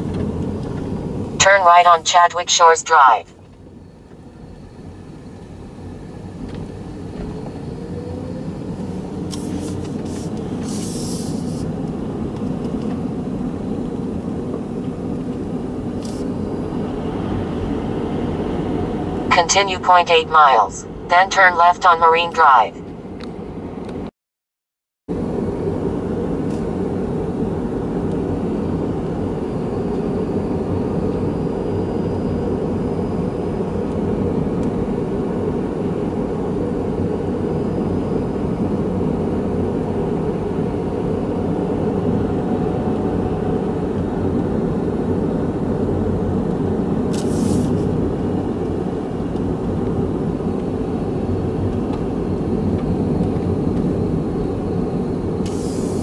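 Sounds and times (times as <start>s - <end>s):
car interior road and engine rumble: 0.0s - 23.9s, 25.2s - 56.0s
brief high hiss: 9.3s - 11.7s, 47.2s - 47.9s, 55.5s - 56.0s.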